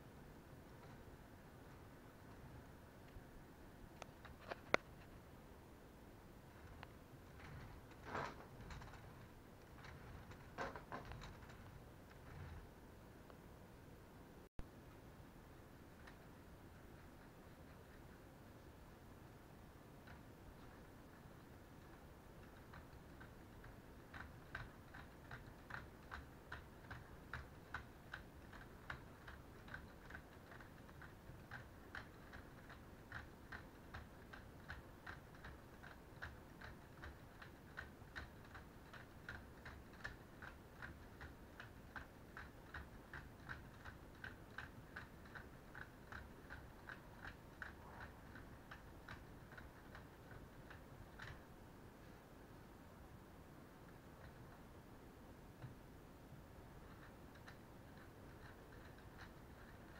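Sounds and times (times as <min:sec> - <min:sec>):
plastic gears clicking: 0:06.5 - 0:12.6, 0:20.0 - 0:51.5.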